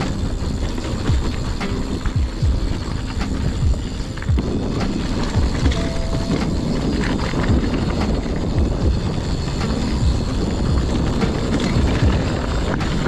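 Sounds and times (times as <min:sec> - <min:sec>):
bike thumping over bumps: 0:00.0 - 0:13.0
bike tyres rumbling on dirt: 0:00.0 - 0:13.0
wind on microphone: 0:00.0 - 0:13.0.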